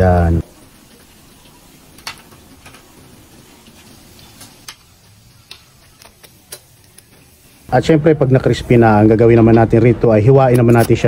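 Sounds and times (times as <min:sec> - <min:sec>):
pork deep-frying sizzle: 0:00.0 - 0:08.9
oil crackling pops: 0:00.6 - 0:07.6.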